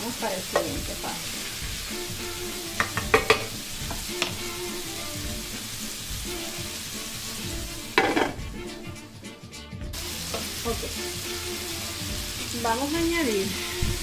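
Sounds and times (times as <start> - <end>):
chicken wings sizzling in skillet: 0.0 - 9.2, 9.9 - 14.0
glass lid knock: 2.8 - 3.5, 8.0 - 8.4.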